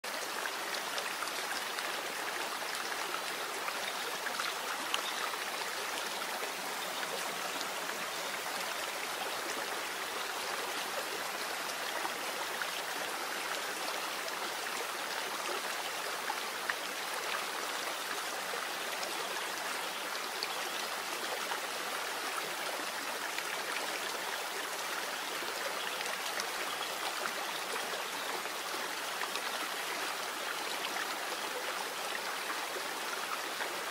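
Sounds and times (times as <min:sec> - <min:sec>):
rushing running water: 0:00.0 - 0:33.9.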